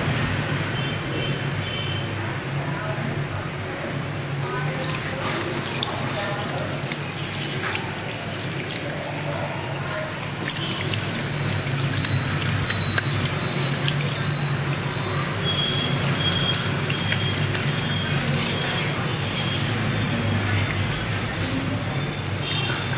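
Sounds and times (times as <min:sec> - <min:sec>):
shower head spraying water: 0:04.4 - 0:18.9.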